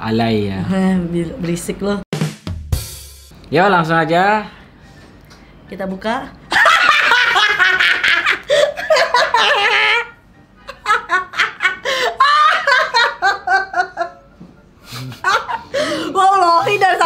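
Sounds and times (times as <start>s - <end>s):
man and woman laughing: 6.5s - 16.0s.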